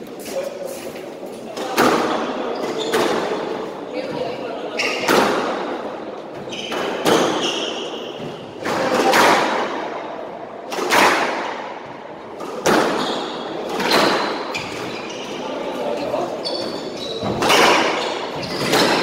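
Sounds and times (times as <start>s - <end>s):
sneaker squeaks on wooden floor: 2.0s - 5.6s, 6.3s - 8.6s, 12.6s - 19.0s
squash ball hits: 8.2s - 9.9s, 10.7s - 14.9s, 17.2s - 19.0s.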